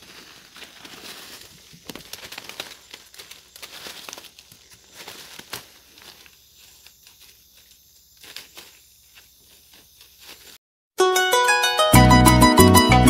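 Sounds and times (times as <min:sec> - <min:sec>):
twigs snapping: 0:00.0 - 0:08.8
rustling dry leaves: 0:00.0 - 0:10.6.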